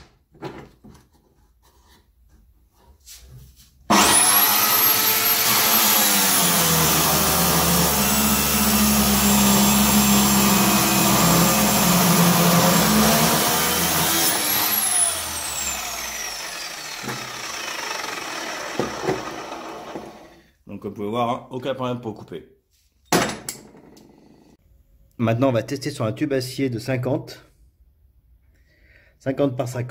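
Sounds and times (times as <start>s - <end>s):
cut-off saw motor whine: 3.9s - 20.4s.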